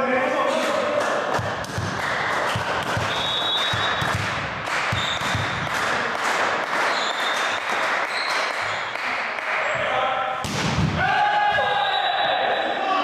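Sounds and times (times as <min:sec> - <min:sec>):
echoing hall noise: 0:00.0 - 0:13.0
volleyball bouncing on floor: 0:01.3 - 0:06.0.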